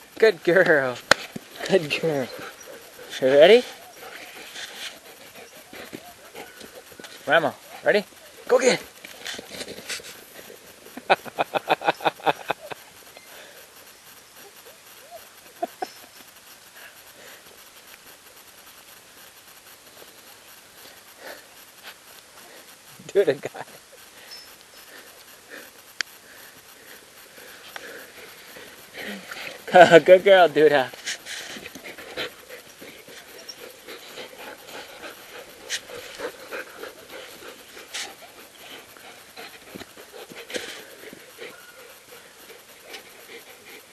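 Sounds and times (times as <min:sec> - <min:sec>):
dog panting: 0:00.6 - 0:11.0, 0:23.6 - 0:43.9.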